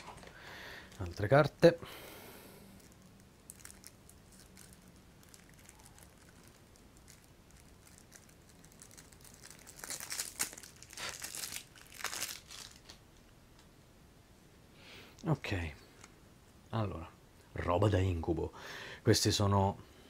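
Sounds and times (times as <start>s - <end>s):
plastic wrap crinkling: 0.0s - 1.7s, 2.6s - 13.0s.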